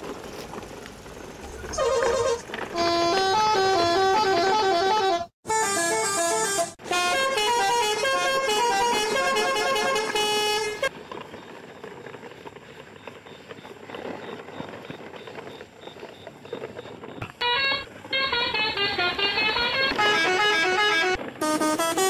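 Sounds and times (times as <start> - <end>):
toy trucks rustling over grass: 0.0 - 3.6, 10.0 - 22.0
horn-like electronic melody: 1.9 - 10.9, 17.4 - 22.0.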